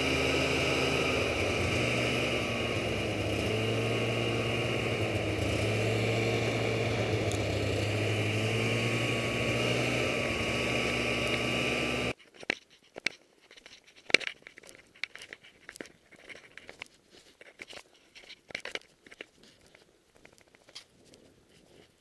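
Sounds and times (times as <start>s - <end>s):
snowmobile engine running: 0.0s - 12.2s.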